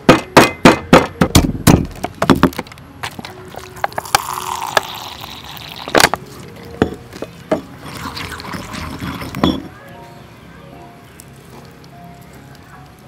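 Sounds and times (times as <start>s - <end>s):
pestle striking stone mortar: 0.0s - 5.2s
liquid pouring into mortar: 3.6s - 6.1s, 7.8s - 9.4s.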